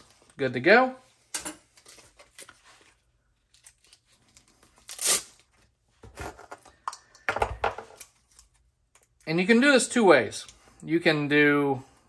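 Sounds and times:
velcro ripping apart: 4.8s - 5.5s.

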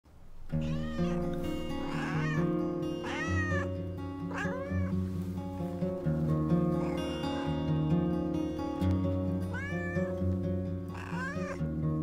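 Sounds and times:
cat meowing: 0.5s - 5.0s, 6.6s - 7.7s, 9.4s - 10.2s, 10.9s - 11.7s
background music: 0.5s - 12.0s.

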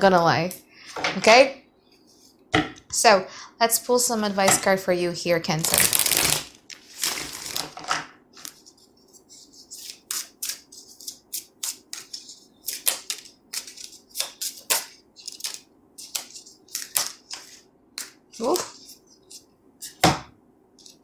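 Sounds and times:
cards shuffling: 5.7s - 20.0s.

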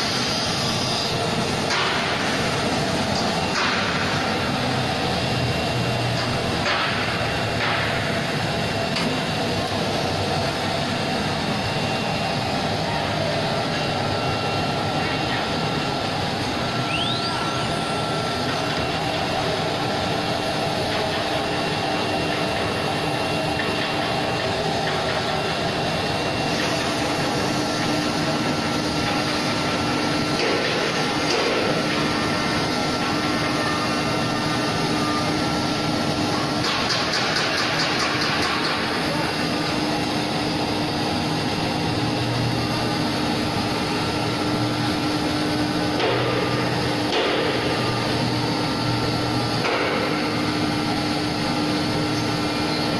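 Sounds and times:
wood router humming and hissing: 0.0s - 6.6s, 7.3s - 37.9s.

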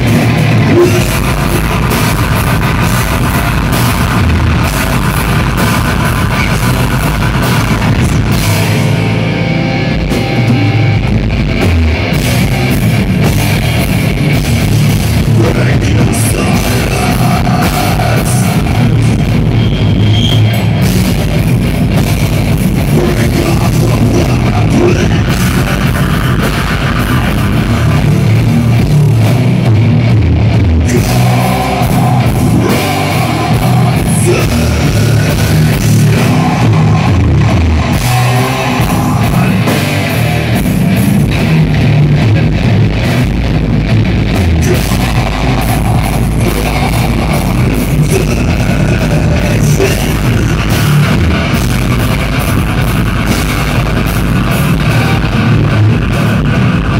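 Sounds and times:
live heavy metal band: 0.0s - 56.9s
person singing: 0.6s - 2.1s, 15.2s - 19.2s, 22.8s - 28.2s, 30.8s - 40.6s, 44.5s - 51.8s.

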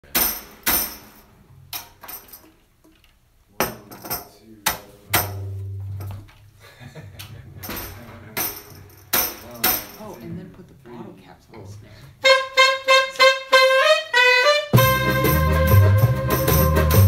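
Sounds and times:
metallic percussive strikes: 7.7s - 10.2s, 14.8s - 17.0s.

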